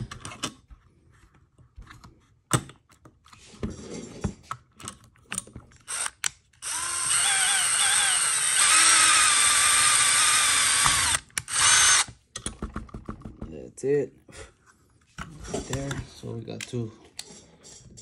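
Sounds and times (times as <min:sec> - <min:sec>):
power drill boring into plastic: 0:05.9 - 0:12.1.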